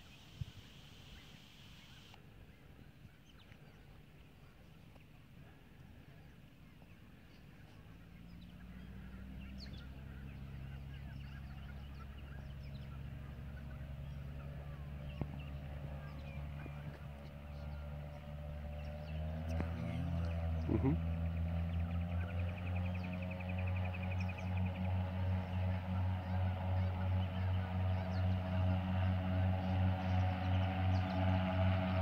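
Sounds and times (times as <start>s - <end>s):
small birds chirping: 0.0s - 32.0s
airship engines droning: 8.7s - 32.0s.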